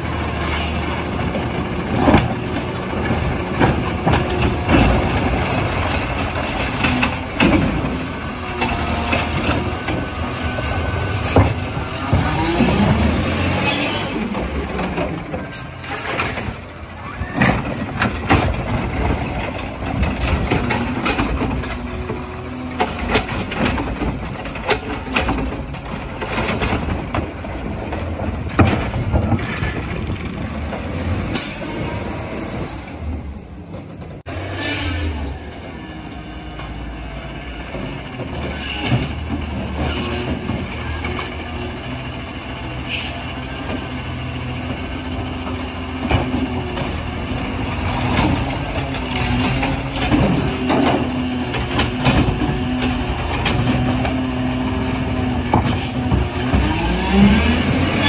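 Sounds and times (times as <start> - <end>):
hydraulics: 0.0 - 58.0
recycling cart clattering: 1.1 - 31.6.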